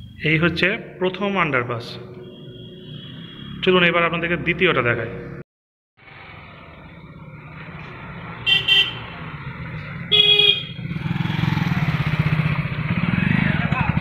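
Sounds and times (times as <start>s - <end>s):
motorcycle horn beeping: 8.4s - 9.1s, 10.1s - 10.9s
motorcycle engine running: 9.4s - 14.0s.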